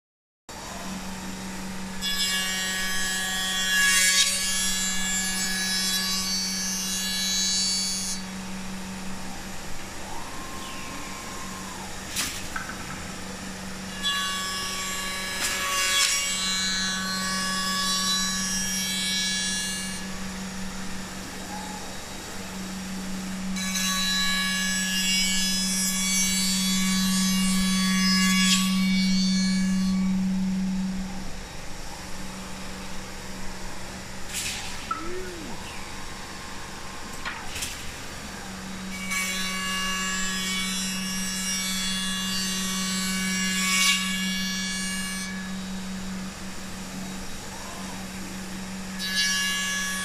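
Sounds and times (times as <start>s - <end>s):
spindle humming: 28.6s - 39.6s.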